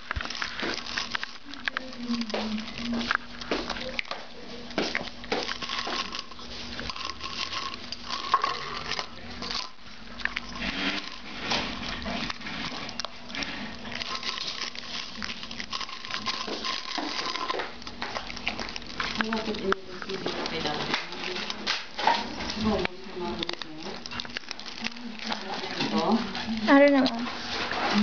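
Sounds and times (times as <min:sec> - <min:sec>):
dog crunching dry kibble: 0:00.0 - 0:28.0
kibble clinking in metal bowl: 0:05.3 - 0:13.0, 0:13.8 - 0:27.2.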